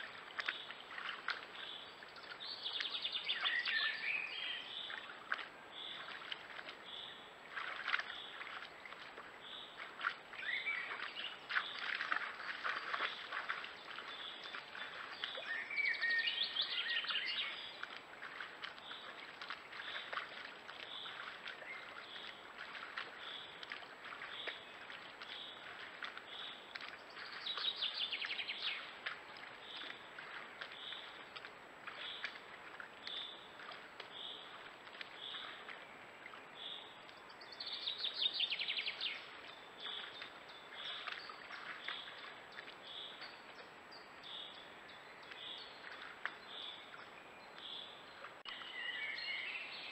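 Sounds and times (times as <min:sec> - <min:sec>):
songbirds singing: 0:00.0 - 0:49.9
water splashing from wading: 0:00.0 - 0:49.9.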